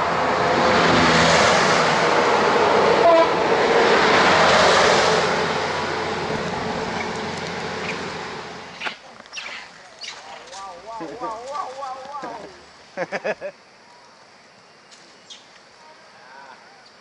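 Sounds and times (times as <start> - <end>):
truck passing: 0.0 - 13.0.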